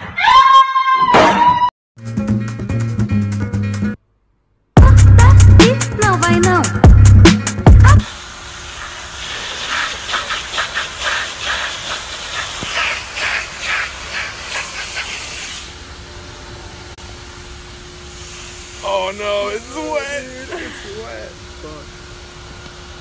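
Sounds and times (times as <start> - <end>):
loud music: 4.8 - 8.0
water jet spraying on concrete: 8.0 - 15.7.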